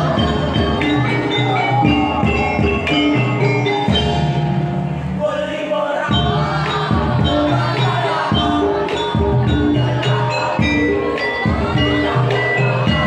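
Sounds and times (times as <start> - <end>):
metallophones struck: 0.0 - 5.3.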